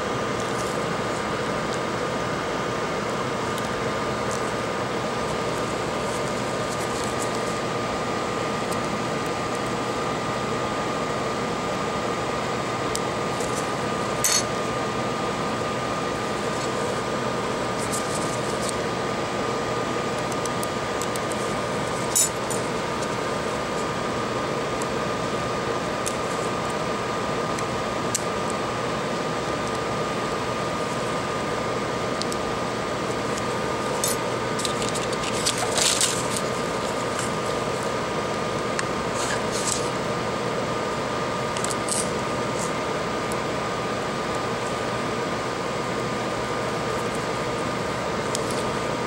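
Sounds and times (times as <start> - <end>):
fan whirring hum: 0.0 - 49.0.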